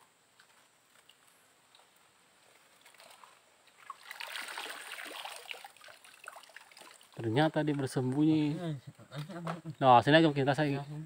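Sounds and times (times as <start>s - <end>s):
river water splashing: 0.9s - 7.4s.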